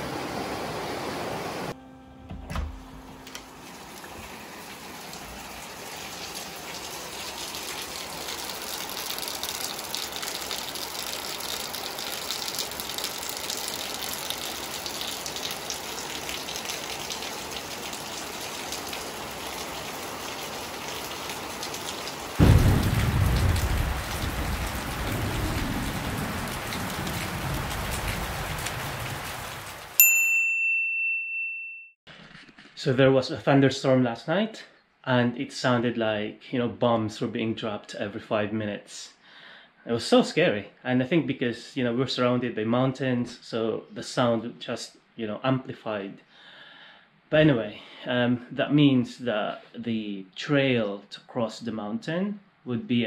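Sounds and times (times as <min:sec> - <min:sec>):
steady rain falling: 0:00.0 - 0:01.8, 0:03.2 - 0:30.0
thunderclap rumbling: 0:22.4 - 0:29.8.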